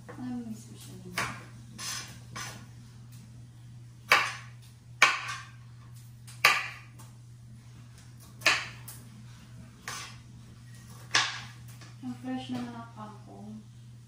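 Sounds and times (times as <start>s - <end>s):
knife chopping on cutting board: 4.1s - 5.5s, 6.4s - 6.9s, 8.4s - 8.8s.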